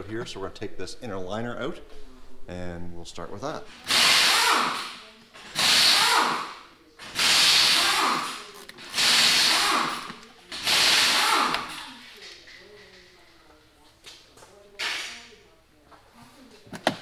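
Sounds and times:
power driver bursts: 0:07.1 - 0:11.7.

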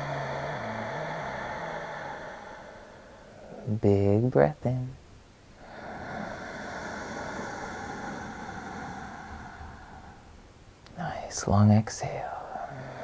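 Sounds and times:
long steady breath inhale: 0:00.0 - 0:03.7, 0:05.5 - 0:10.6, 0:12.4 - 0:13.0.

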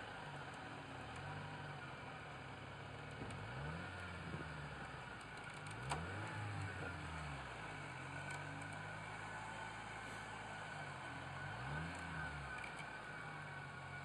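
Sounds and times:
suv engine revving: 0:03.2 - 0:14.0.

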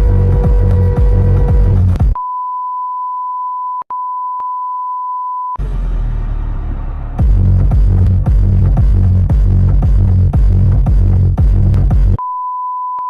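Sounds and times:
electronic dance music: 0:00.0 - 0:02.2, 0:07.2 - 0:12.2
high beep tone: 0:00.3 - 0:05.6.

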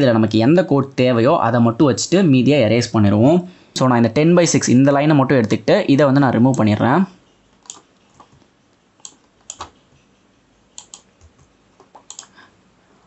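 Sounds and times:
keyboard keys clicking: 0:09.0 - 0:09.8, 0:10.8 - 0:12.4.

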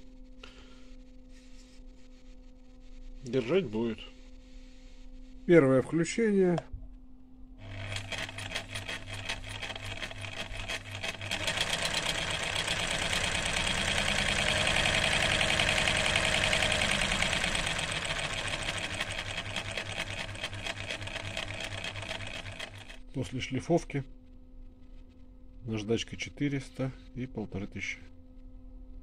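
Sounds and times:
sewing machine running: 0:07.6 - 0:23.0.

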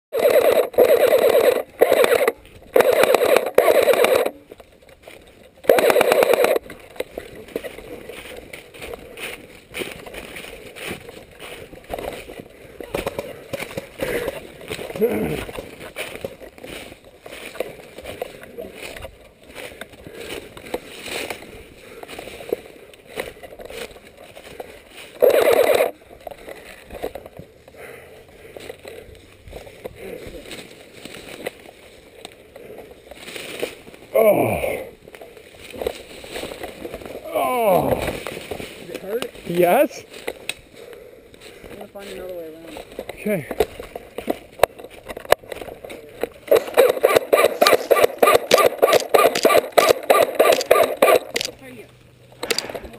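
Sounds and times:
airsoft rifle firing bursts: 0:00.2 - 0:04.4, 0:05.6 - 0:06.7, 0:25.2 - 0:26.0, 0:46.5 - 0:51.6, 0:52.4 - 0:52.9
footsteps crunching through dry leaves: 0:06.6 - 0:34.1, 0:34.9 - 0:52.9
faint clicks and rustling: 0:37.9 - 0:52.9
loud rapid clatter: 0:46.8 - 0:51.5.

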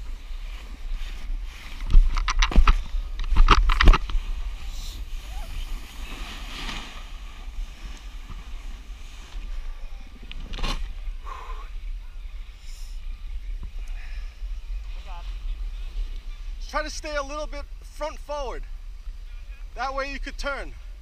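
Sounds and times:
wind rumbling on microphone: 0:00.0 - 0:21.0
snowboard scraping over snow: 0:04.0 - 0:09.8.

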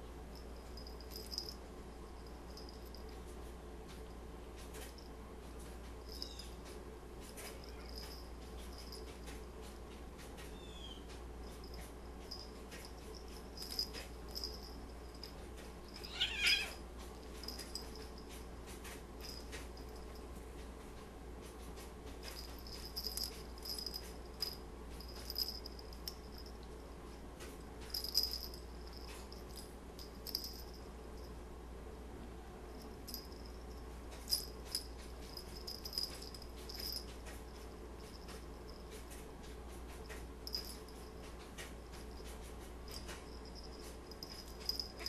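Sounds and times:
high-pitched cat squeak: 0:16.0 - 0:16.8.

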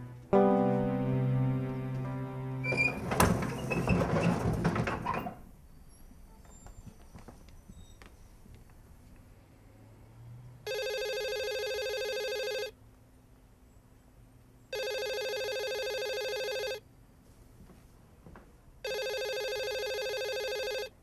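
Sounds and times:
desk telephone ringing: 0:10.7 - 0:12.8, 0:14.7 - 0:16.8, 0:18.8 - 0:21.0.

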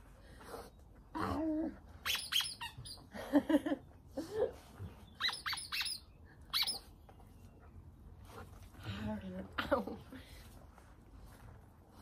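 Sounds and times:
squeaky toy squeaking: 0:02.0 - 0:03.1, 0:05.2 - 0:06.9.

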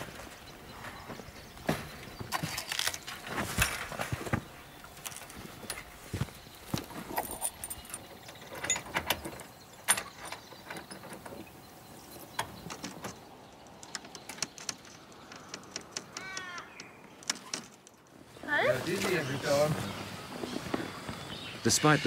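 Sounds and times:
chain rattling against metal gate: 0:07.0 - 0:11.8.

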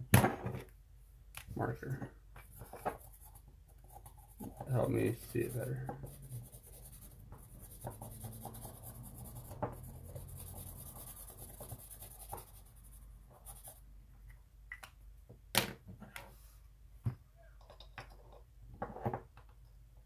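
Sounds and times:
marker rubbing on metal: 0:02.4 - 0:13.8.

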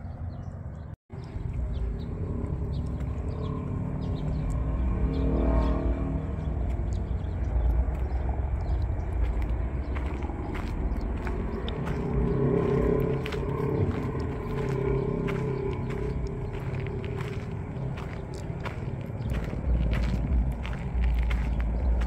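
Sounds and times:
low traffic rumble: 0:00.0 - 0:22.0
footsteps on path: 0:01.2 - 0:22.0
vehicle passing: 0:01.2 - 0:22.0.

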